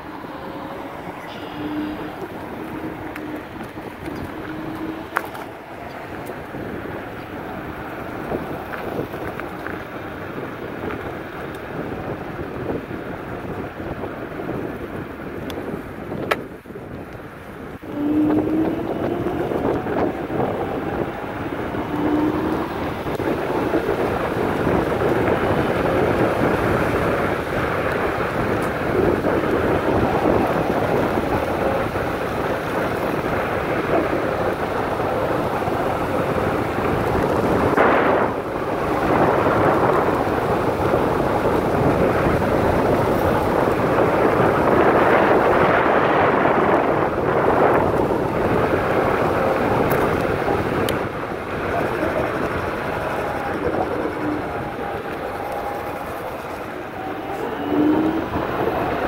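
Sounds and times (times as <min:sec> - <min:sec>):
faint rising whine: 0:00.0 - 0:10.0, 0:17.8 - 0:26.9, 0:51.4 - 0:59.0
wind buffeting microphone: 0:00.0 - 0:59.0.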